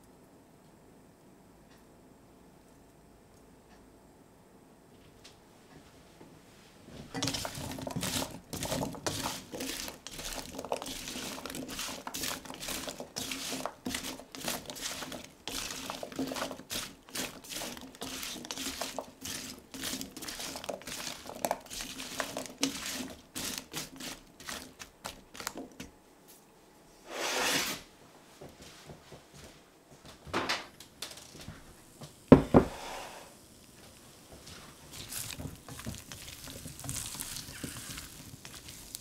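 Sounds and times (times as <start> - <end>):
vegetable pieces clacking in pan: 7.2 - 25.8, 34.8 - 39.0.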